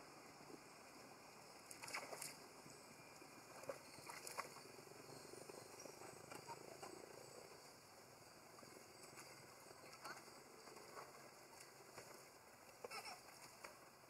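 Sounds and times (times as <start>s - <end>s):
monkeys splashing in water: 1.7s - 2.4s, 3.6s - 4.7s.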